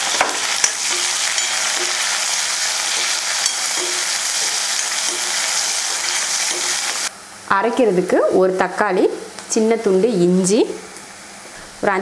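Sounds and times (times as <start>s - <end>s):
onions sizzling in oil: 0.0s - 7.1s
spatula stirring: 0.0s - 7.1s.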